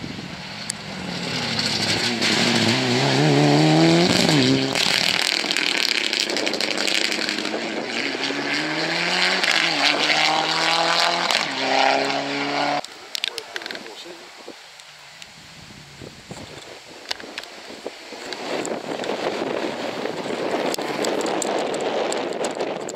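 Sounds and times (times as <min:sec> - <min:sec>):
car engine accelerating hard: 0:00.4 - 0:12.9.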